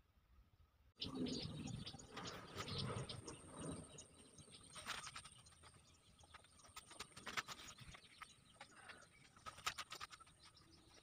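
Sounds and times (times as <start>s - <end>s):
faint bird calls: 1.0s - 11.0s.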